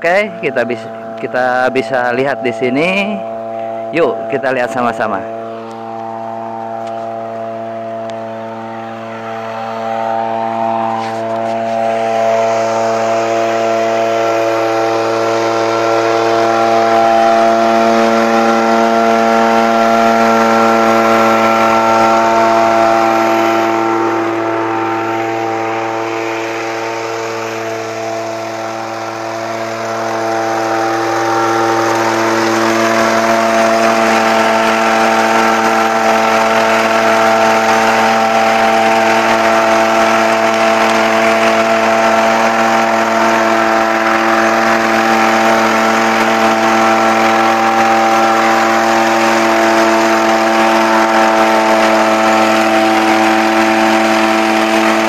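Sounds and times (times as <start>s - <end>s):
small engine running: 0.0s - 55.0s.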